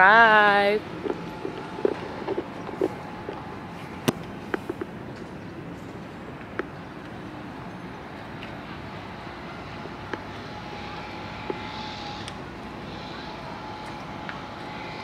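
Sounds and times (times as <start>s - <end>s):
distant traffic: 0.0s - 15.0s
harbourside activity: 0.0s - 15.0s.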